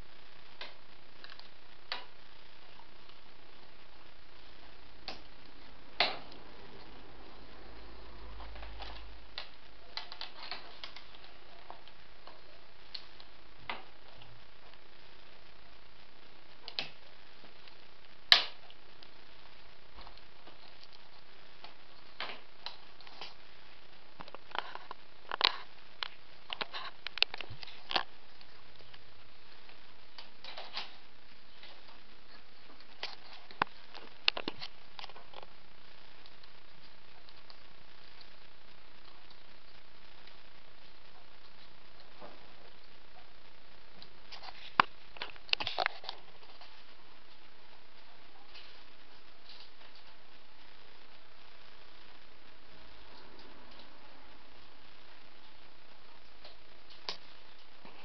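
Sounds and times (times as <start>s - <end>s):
steady background hiss: 0.0s - 58.0s
willow rods clicking and rustling: 8.4s - 14.8s, 29.7s - 35.6s, 43.9s - 50.2s.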